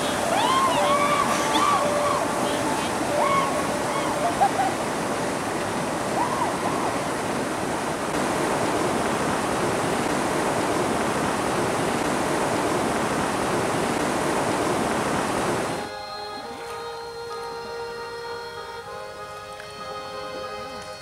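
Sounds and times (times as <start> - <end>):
river rapids roaring: 0.0 - 16.8.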